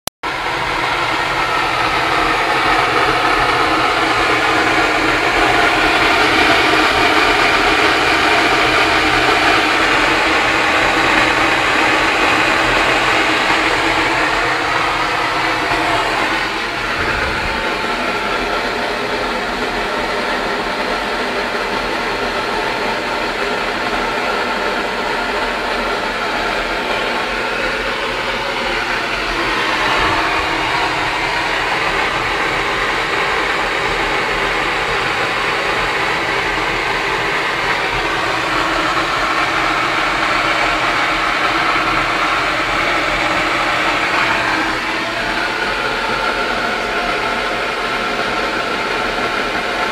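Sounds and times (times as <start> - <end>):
pressure stove hissing: 0.6 - 20.4.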